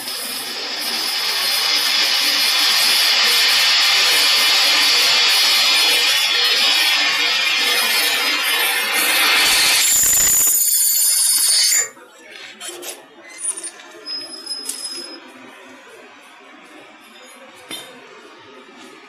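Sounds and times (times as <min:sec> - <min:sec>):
drill boring through steel: 0:00.0 - 0:12.0.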